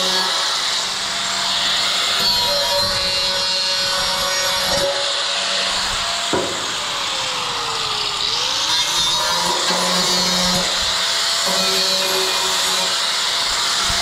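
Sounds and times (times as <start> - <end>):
angle grinder whirring: 0.0 - 14.0
sharp knock: 6.3 - 6.8.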